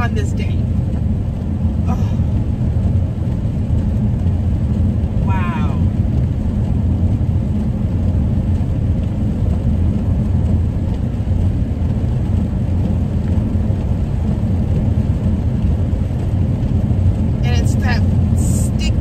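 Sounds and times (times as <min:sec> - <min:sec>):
vehicle interior road rumble: 0:00.0 - 0:19.0.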